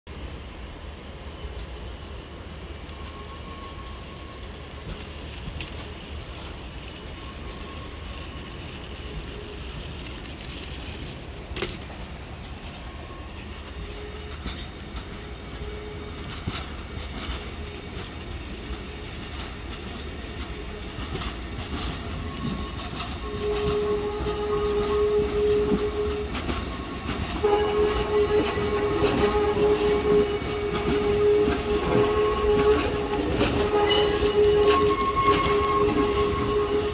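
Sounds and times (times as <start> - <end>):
electric train rumbling on tracks: 0.1 - 36.9
train wheel squeal: 1.4 - 36.9.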